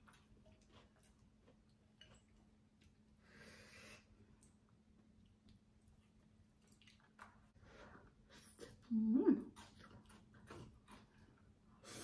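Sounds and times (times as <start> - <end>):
faint clicks of eating: 0.0 - 3.2, 4.3 - 8.9.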